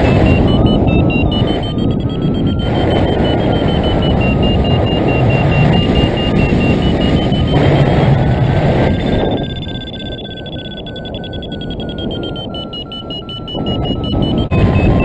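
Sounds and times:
wind rushing over microphone: 0.0 - 9.6
variometer beeping: 0.0 - 15.0.

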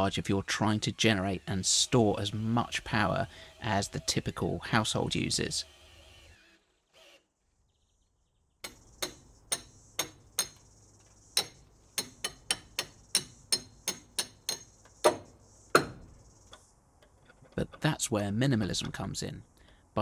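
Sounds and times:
hammer striking metal bolt: 11.4 - 16.1.

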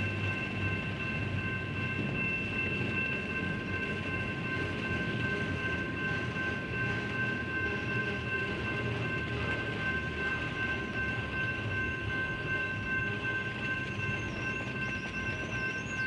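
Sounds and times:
high-pitched ringing tones: 0.0 - 16.0
train wheels rumbling on rail: 0.0 - 16.0.

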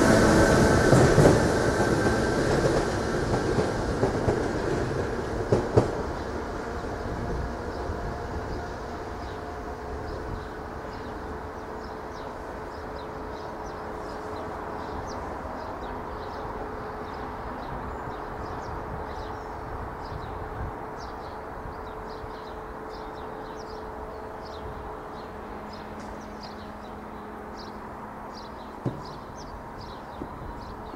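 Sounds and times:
electric train rumbling: 0.0 - 30.9
small birds chirping: 10.0 - 30.9.

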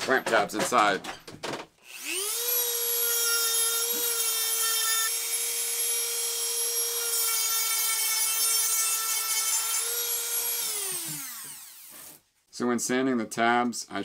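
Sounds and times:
rotary tool whining: 9.8 - 12.2.

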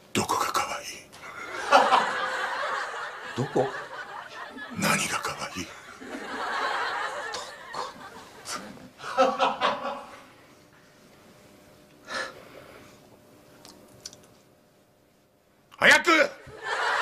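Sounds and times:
laughter and breathy chuckling: 1.3 - 10.3.

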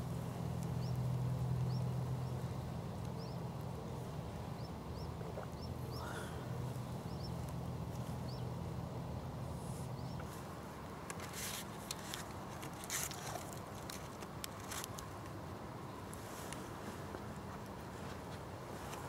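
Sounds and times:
low steady hum: 0.0 - 11.1.

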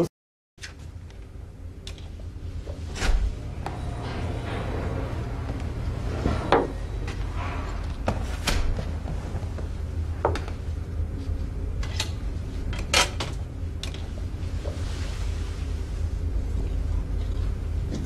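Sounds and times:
low hum: 0.6 - 18.0.

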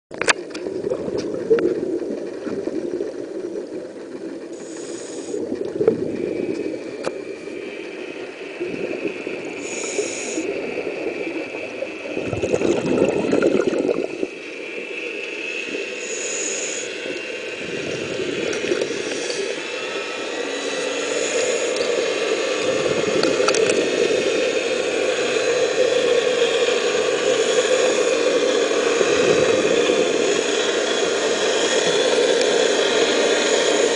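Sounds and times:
underwater suction dredge running: 0.1 - 33.9.

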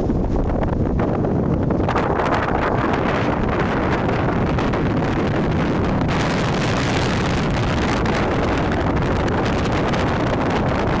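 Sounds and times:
wind buffeting the microphone: 0.0 - 11.0
heavy rain: 2.9 - 11.0.

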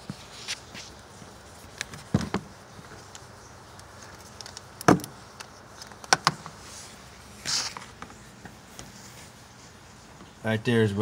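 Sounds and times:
camera knocks and scrapes: 1.9 - 2.5.

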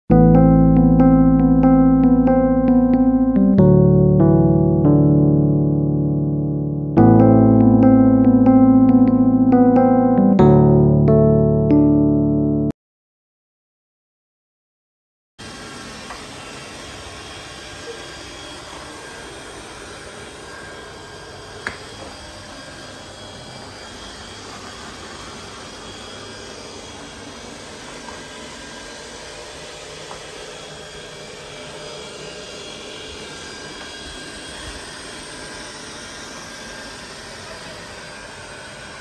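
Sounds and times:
robot vacuum cleaner whirring: 15.4 - 39.0.

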